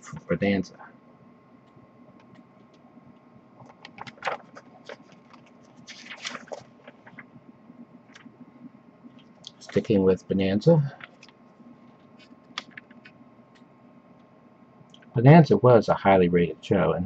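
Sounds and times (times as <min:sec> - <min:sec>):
small clicks of pages: 0:01.6 - 0:07.3, 0:11.0 - 0:14.3
paper pages rustling: 0:03.6 - 0:07.4, 0:09.1 - 0:10.0, 0:10.9 - 0:13.2.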